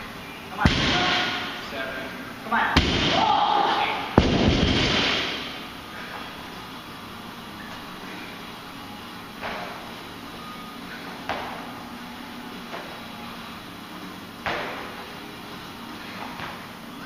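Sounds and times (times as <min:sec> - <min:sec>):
body thudding on gym floor: 0:14.4 - 0:15.0.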